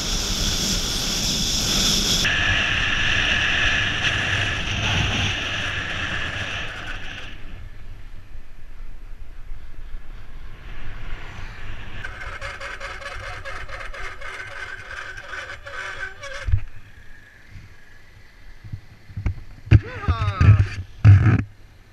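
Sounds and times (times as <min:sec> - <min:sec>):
wind on microphone: 0:00.0 - 0:07.8
bike rolling on paved road: 0:00.0 - 0:17.4
high squeal with rapid ticking: 0:11.8 - 0:17.1.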